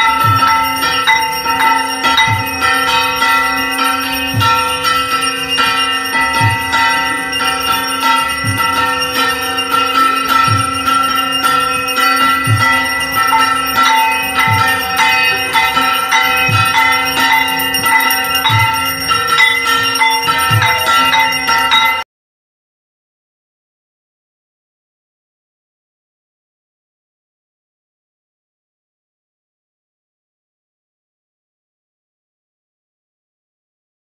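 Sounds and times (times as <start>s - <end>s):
bells ringing rapidly: 0.0s - 22.0s
low beat: 0.0s - 22.0s.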